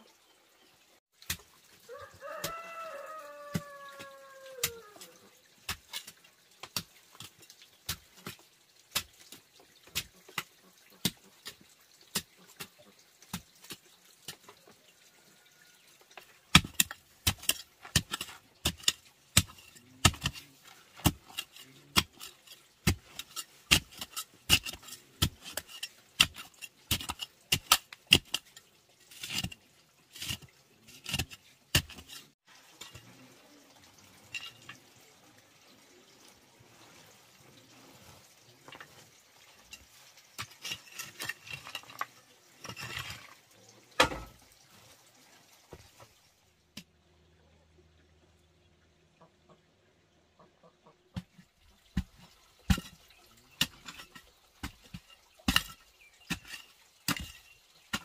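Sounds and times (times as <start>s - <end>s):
rooster crowing: 1.9s - 5.1s
hoe chopping clay soil: 16.5s - 29.6s, 30.2s - 33.0s, 51.2s - 58.0s.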